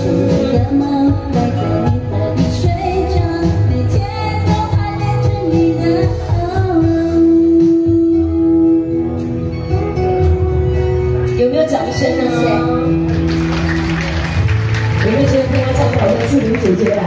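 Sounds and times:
woman singing: 0.0 - 9.0.

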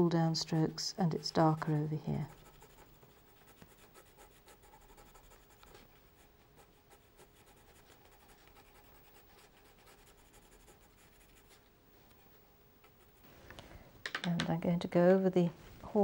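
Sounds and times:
pencil scratching on paper: 0.2 - 11.6.

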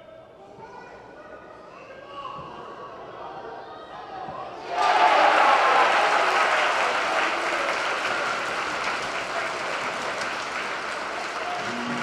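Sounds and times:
crowd applauding and cheering: 4.7 - 12.0.

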